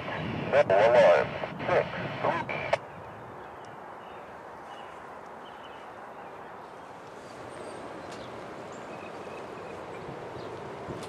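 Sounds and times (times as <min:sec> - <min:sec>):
outdoor background noise: 0:00.0 - 0:11.0.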